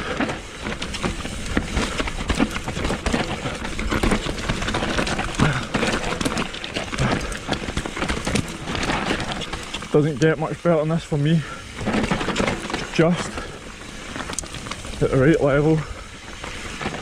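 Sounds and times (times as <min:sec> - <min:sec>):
bike rattles and knocks: 0:00.0 - 0:17.0
tyres rumbling over dirt: 0:00.0 - 0:17.0.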